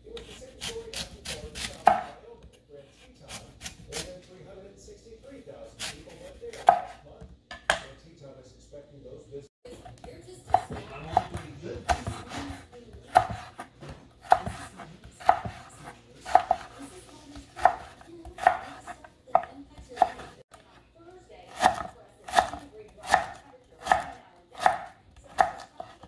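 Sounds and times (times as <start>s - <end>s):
knife chopping on wooden board: 0.2s - 2.2s, 5.8s - 7.9s, 9.9s - 20.5s, 21.5s - 26.0s.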